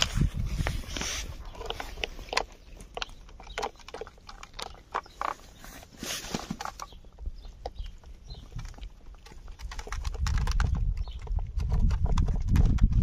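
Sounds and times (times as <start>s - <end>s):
cat chewing food: 0.9s - 5.6s, 7.3s - 13.0s.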